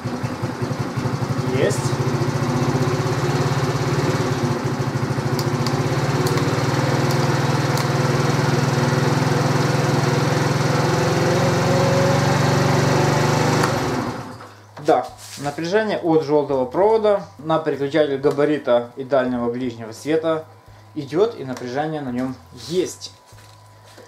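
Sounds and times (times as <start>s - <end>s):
scooter engine idling: 0.0s - 14.3s.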